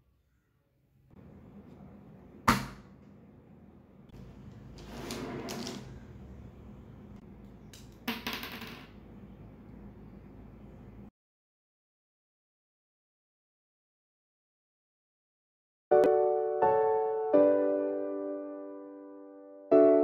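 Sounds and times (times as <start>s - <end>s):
steady low hum: 5.7s - 8.1s, 8.9s - 11.1s.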